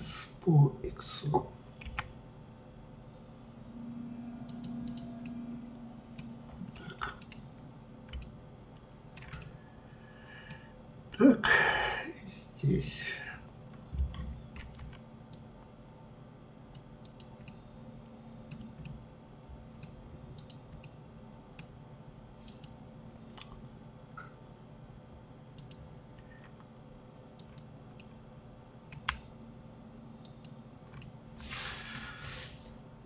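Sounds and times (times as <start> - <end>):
low steady hum: 0.0 - 33.0
mouse and keyboard clicks: 4.5 - 5.4.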